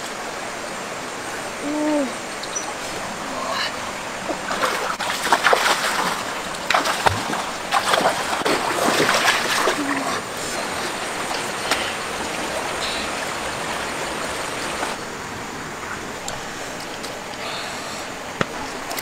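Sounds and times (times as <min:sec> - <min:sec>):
stream water rushing: 0:00.0 - 0:19.0
water splashing: 0:01.3 - 0:15.0.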